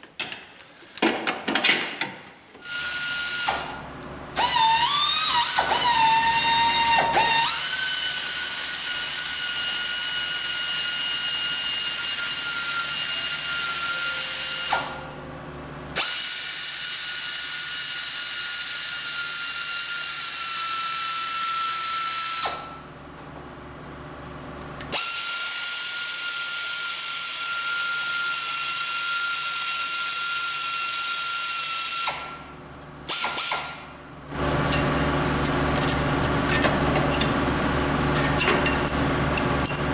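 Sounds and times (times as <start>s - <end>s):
power ratchet motor whine: 2.6s - 15.1s, 16.0s - 22.8s, 24.8s - 32.4s, 33.1s - 33.8s.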